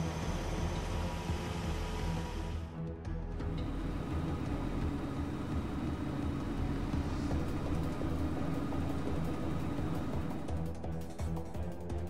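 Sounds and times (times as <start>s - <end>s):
cartoon truck engine running: 3.4s - 12.0s.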